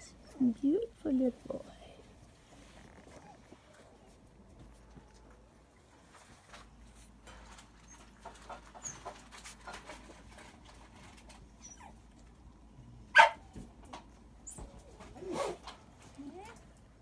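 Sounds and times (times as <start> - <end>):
puppies squeaking and whimpering: 7.8 - 9.4, 11.6 - 12.1
puppy yelp: 11.6 - 12.1, 13.2 - 13.5.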